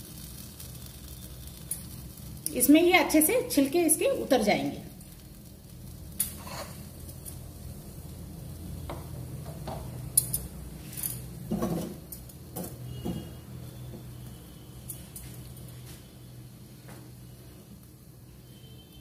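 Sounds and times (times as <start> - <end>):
low steady hum: 0.0 - 18.9
tongs clinking on wire grate: 10.2 - 12.4.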